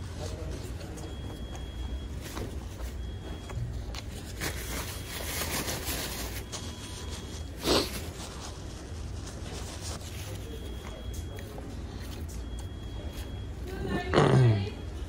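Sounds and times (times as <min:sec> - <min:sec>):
paper wrapper being crumpled: 0:03.9 - 0:10.7.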